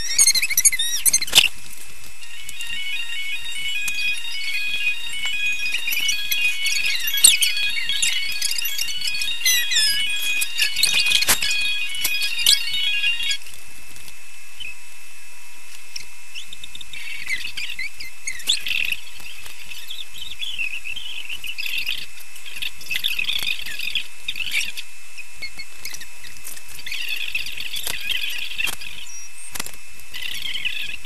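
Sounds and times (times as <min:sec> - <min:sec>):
small birds chirping: 0:00.0 - 0:13.6, 0:15.9 - 0:31.0.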